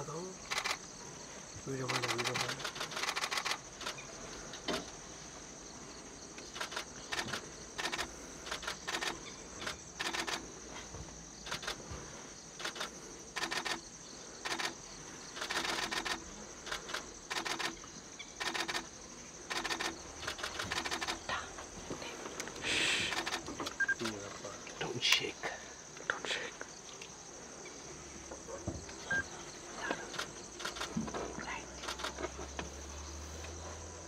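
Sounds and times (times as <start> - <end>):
camera shutter bursts: 1.8 - 4.0, 6.5 - 10.4, 12.6 - 13.8, 14.4 - 14.8, 15.4 - 17.8, 18.4 - 18.9, 19.5 - 21.2.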